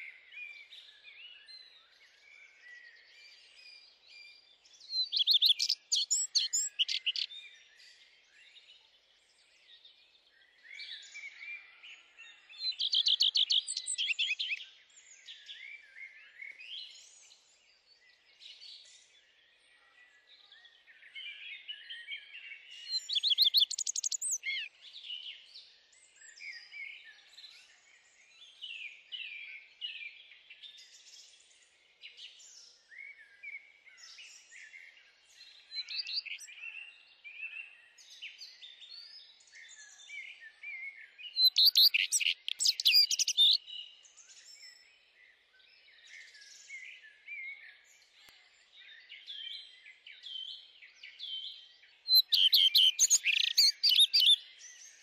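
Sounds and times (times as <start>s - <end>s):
songbirds singing: 0.0s - 55.0s
fast high bird chirping: 23.4s - 24.4s, 41.5s - 43.6s, 52.2s - 54.4s.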